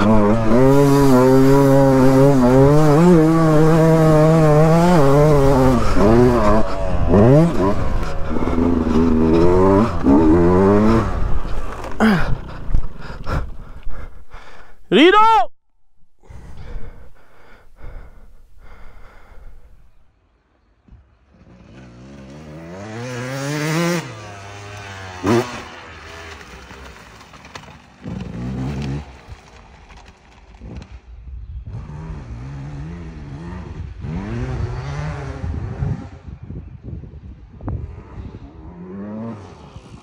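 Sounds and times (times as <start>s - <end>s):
dirt bike revving: 0.0s - 14.2s, 20.9s - 29.2s, 31.7s - 36.2s.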